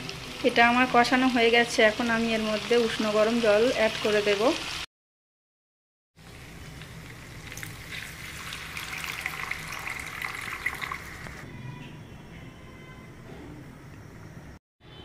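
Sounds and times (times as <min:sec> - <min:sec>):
crackle against hot pan: 0:00.0 - 0:04.9, 0:06.2 - 0:11.4
water pouring and splashing: 0:06.2 - 0:11.4.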